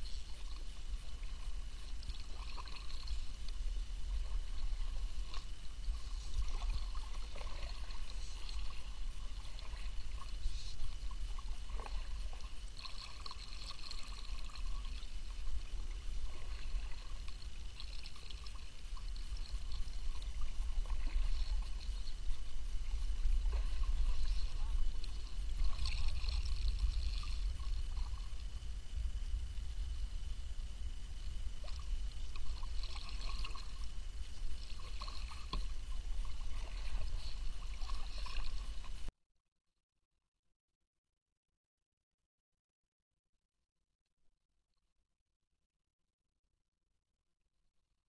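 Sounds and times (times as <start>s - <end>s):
water trickling and dripping: 0.0s - 29.2s
paddle strokes in water: 0.0s - 30.2s, 31.2s - 39.1s
steady low rumble: 0.0s - 39.1s.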